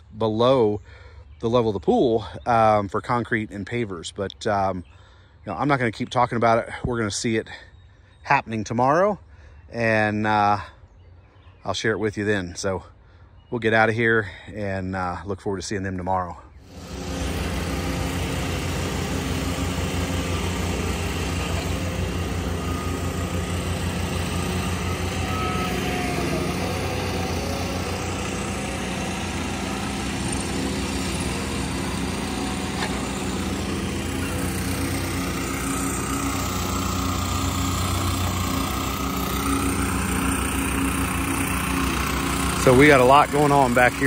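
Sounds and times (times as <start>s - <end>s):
construction machine engines running: 16.4s - 44.0s.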